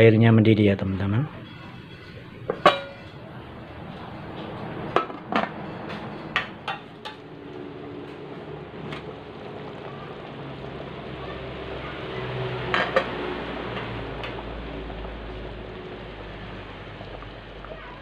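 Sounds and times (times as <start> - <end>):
liquid heating with steady hiss: 0.0 - 18.0
metal pot lid knocking on rim: 1.8 - 3.2.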